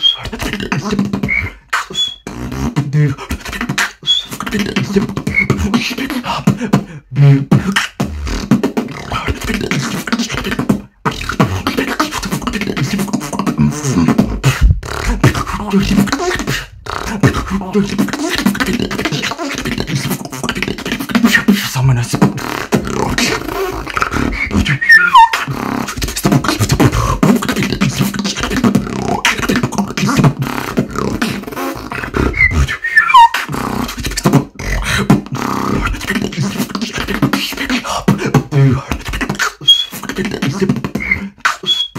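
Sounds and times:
person beatboxing: 0:00.0 - 0:41.9
high falling pitch glides: 0:24.8 - 0:25.4.

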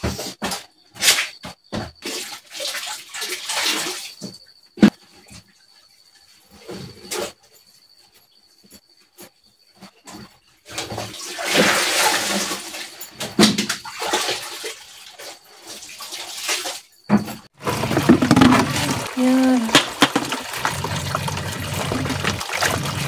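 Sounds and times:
water sloshing and splashing: 0:01.8 - 0:04.4, 0:10.7 - 0:23.0.

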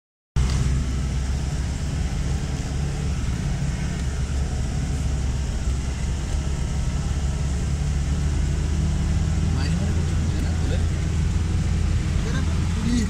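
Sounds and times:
vehicle engine rumble on dirt track: 0:00.4 - 0:13.0.

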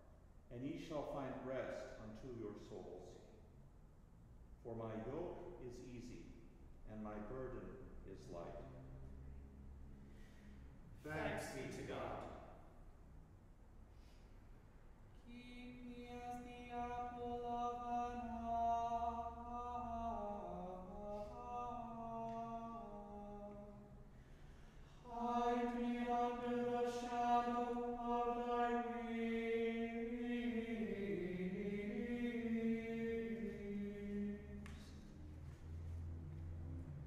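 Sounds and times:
men's choir chanting plainchant: 0:25.0 - 0:35.1.

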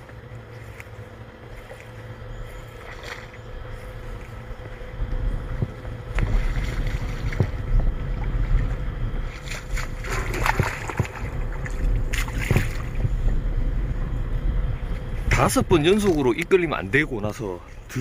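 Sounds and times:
wind rumbling on microphone: 0:00.0 - 0:18.0
fish splashing in water: 0:01.4 - 0:04.8, 0:06.0 - 0:13.1.

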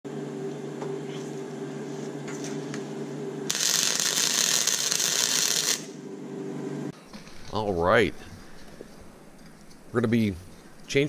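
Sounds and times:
welder humming: 0:03.3 - 0:11.0
welding arc sizzling: 0:03.5 - 0:06.0.

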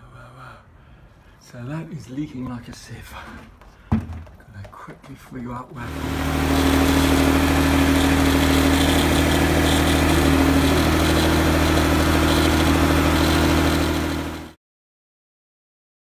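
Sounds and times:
electric fuel pump humming: 0:05.8 - 0:14.6.

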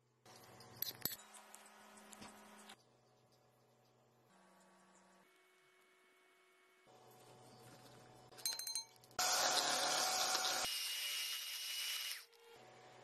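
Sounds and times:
electric hand mixer whirring: 0:09.2 - 0:12.3.

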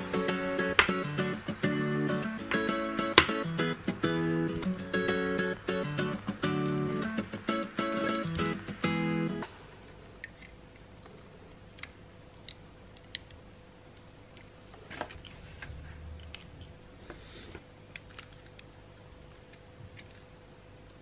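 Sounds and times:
plastic toy bricks clicking: 0:17.9 - 0:18.7.

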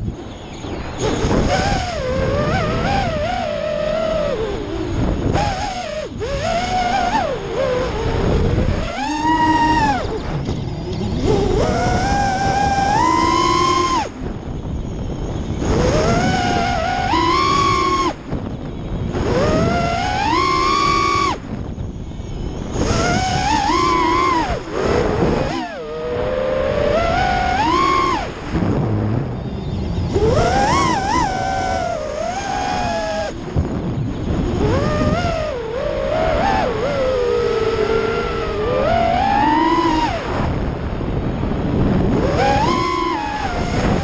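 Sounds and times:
quadcopter motors whining: 0:00.0 - 0:44.0.

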